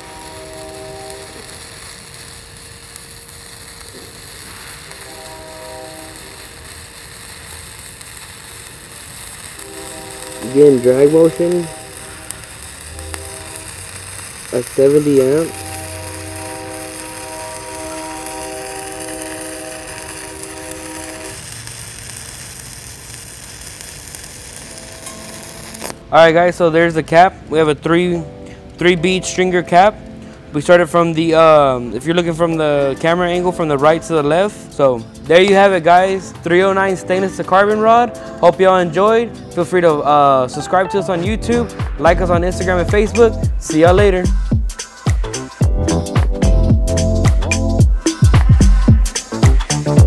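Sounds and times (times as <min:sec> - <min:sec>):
multi-tone hum: 0:00.0 - 0:26.1
welding arc crackling and hissing: 0:00.0 - 0:27.2, 0:28.8 - 0:50.0.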